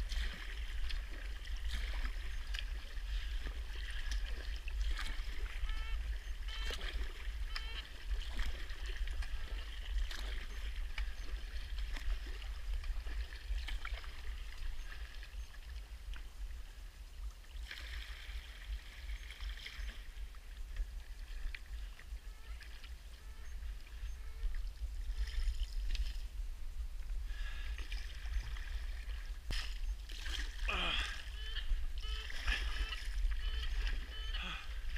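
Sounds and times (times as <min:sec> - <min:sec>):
paddle dipping and dripping water: 0:00.0 - 0:34.9
steady low rumble: 0:20.1 - 0:30.1.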